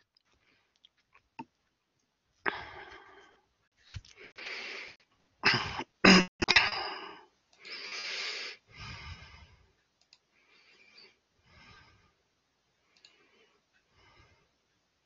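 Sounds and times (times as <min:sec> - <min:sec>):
man coughing: 0:05.4 - 0:07.1
breathy exhale: 0:07.6 - 0:09.6.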